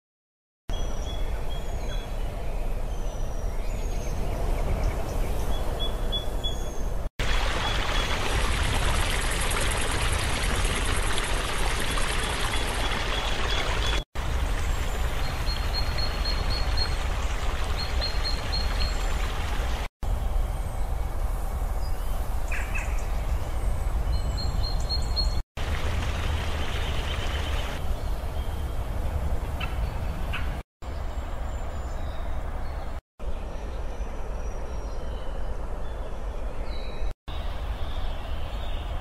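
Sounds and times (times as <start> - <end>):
river water rushing: 7.2 - 19.9, 25.6 - 27.8.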